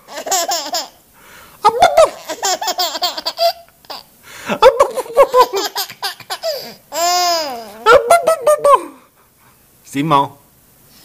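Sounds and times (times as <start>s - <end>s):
baby laughing: 0.0s - 1.0s, 1.6s - 9.0s.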